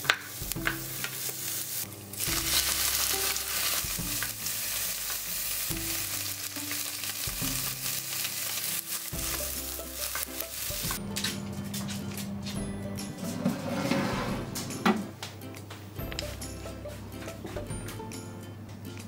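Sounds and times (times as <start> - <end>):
vegetables sizzling in frying pan: 0.0 - 11.0.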